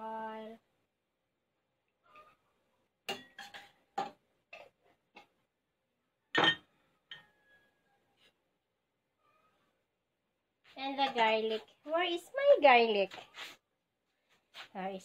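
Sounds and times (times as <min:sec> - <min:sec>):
metal spoon clinking on glass: 0:03.1 - 0:04.1.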